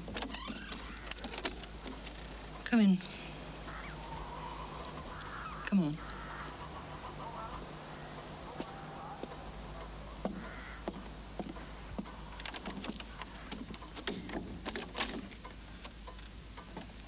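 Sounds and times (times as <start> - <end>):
steady low hum: 0.0 - 17.0
footsteps: 8.6 - 9.4, 10.2 - 12.2.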